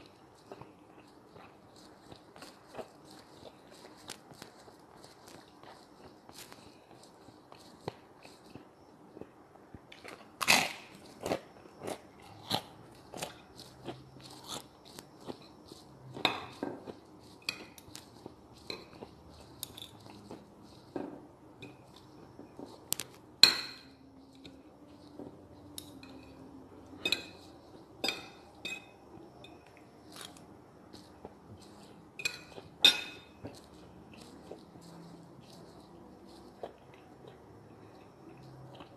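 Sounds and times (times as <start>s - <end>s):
crunching and chewing food: 0.0s - 38.9s.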